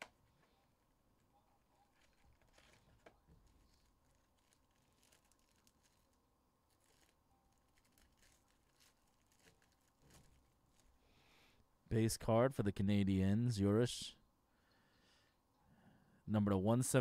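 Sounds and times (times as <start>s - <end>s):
foil card pack tearing: 1.9s - 10.9s.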